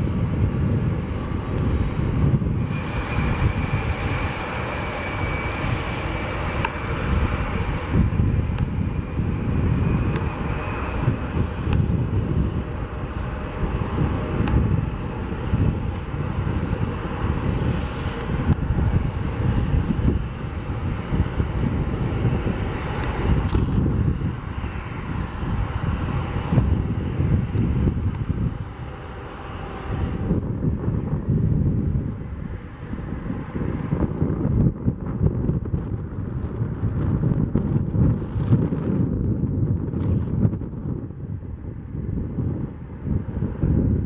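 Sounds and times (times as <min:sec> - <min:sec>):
jet engines rumbling: 0:00.0 - 0:44.0
thin high whine: 0:02.4 - 0:06.3.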